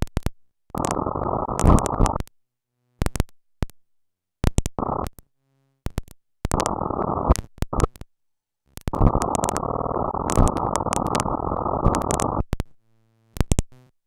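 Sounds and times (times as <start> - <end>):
digital glitch static bursts: 0.8 - 2.2, 4.8 - 5.1, 6.5 - 7.9, 8.9 - 12.5
sharp clicks: 8.8 - 12.7.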